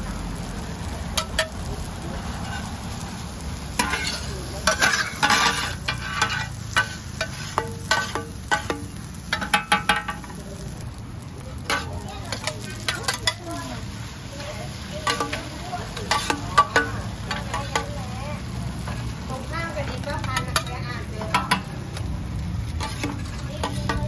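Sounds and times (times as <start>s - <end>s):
frying sizzle: 0.0s - 24.0s
metal spatulas scraping iron pan: 2.4s - 2.7s, 3.8s - 10.3s, 11.7s - 13.6s, 15.0s - 18.0s, 22.7s - 24.0s.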